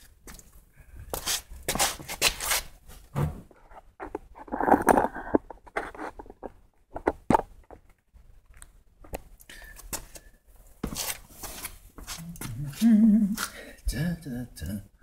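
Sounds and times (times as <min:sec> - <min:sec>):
sharp clicks and scrapes: 0:03.7 - 0:08.7.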